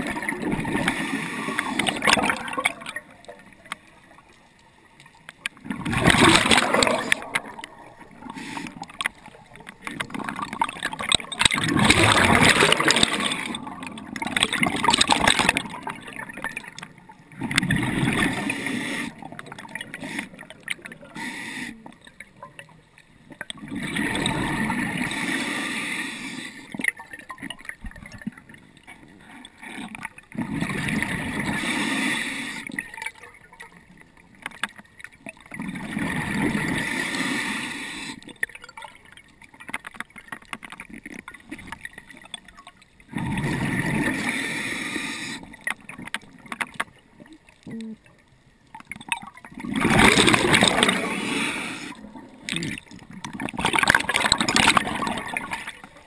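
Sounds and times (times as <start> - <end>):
bubbles gurgling underwater: 0.0 - 4.2, 5.5 - 21.1, 22.1 - 25.4, 26.8 - 31.7, 32.7 - 37.1, 40.8 - 44.4, 48.7 - 56.0
diver inhaling through regulator: 6.4 - 9.1, 18.2 - 19.2, 21.1 - 22.0, 31.5 - 32.8, 36.7 - 38.3, 44.0 - 45.6, 50.7 - 52.1.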